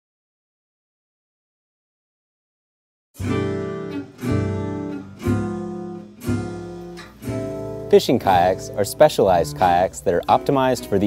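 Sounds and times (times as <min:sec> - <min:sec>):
strummed guitar chords: 0:03.2 - 0:11.0.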